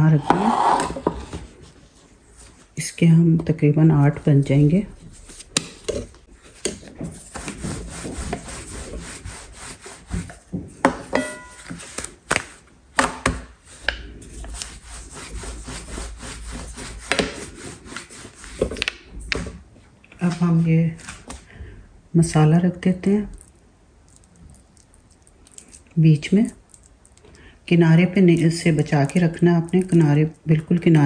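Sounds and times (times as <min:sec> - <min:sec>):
rolling pin rolling dough: 0:00.0 - 0:19.8, 0:28.0 - 0:31.0.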